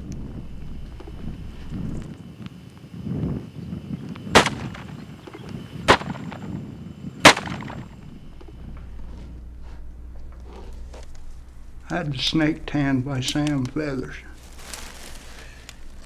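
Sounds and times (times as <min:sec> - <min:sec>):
revolver shots: 0:04.4 - 0:05.0, 0:05.8 - 0:06.5, 0:07.2 - 0:08.6.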